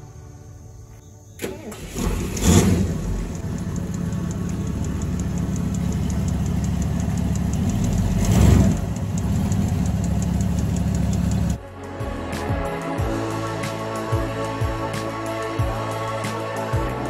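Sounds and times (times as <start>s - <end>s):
truck engine idling: 1.4s - 11.6s
fast even engine ticking: 2.0s - 11.6s.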